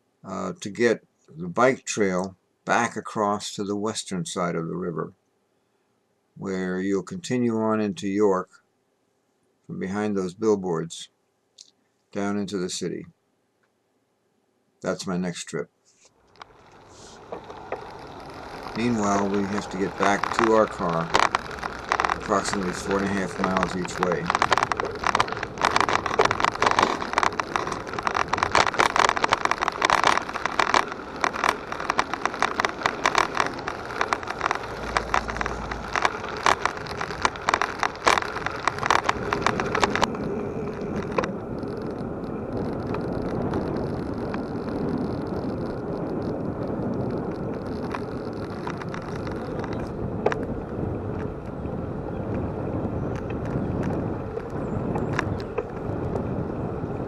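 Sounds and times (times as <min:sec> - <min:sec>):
bicycle tyres on gravel: 0:16.1 - 0:57.0
bicycle tyres rolling on asphalt: 0:16.1 - 0:57.0.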